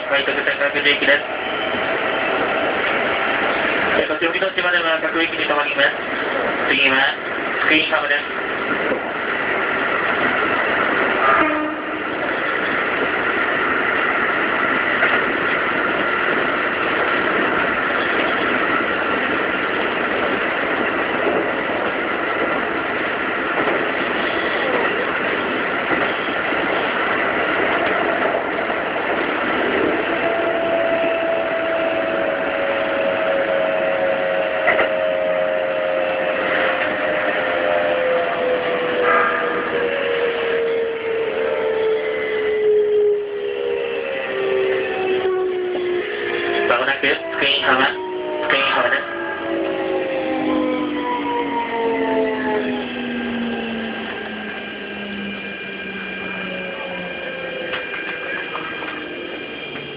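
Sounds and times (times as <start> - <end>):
train wheels rumbling on rail: 0.0 - 59.9
low tones sliding downward: 26.4 - 59.9.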